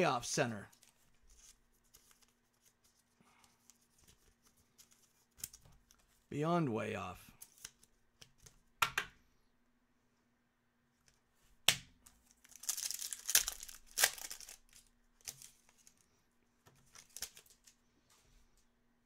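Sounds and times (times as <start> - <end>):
foil wrapper crinkling and tearing: 12.3 - 15.9, 16.9 - 17.8.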